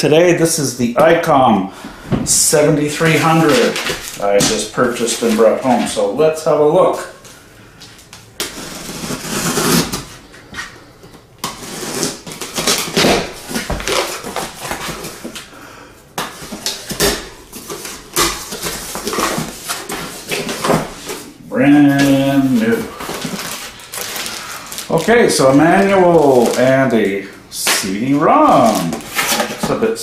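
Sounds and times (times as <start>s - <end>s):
cardboard rustling: 2.2s - 6.1s, 11.4s - 15.5s, 16.2s - 30.0s
knife slitting packing tape: 8.4s - 10.1s, 11.4s - 15.4s.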